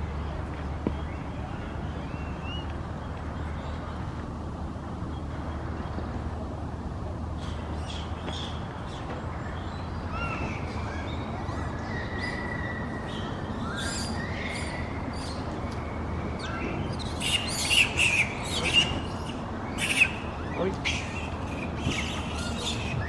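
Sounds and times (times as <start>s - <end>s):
steady background hum: 0.0s - 23.0s
harsh monkey calls: 16.4s - 23.0s.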